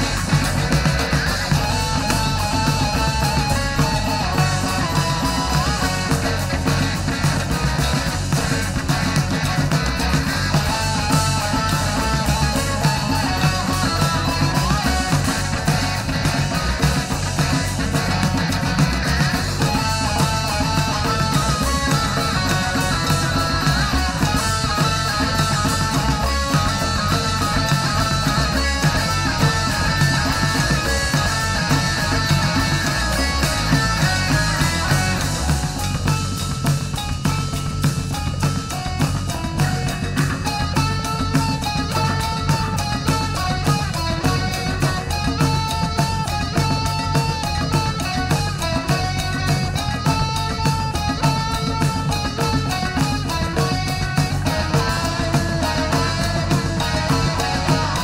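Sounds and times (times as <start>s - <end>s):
bass: 0.0s - 58.0s
guitar playing a melody: 0.0s - 58.0s
steady drum beat: 0.0s - 58.0s.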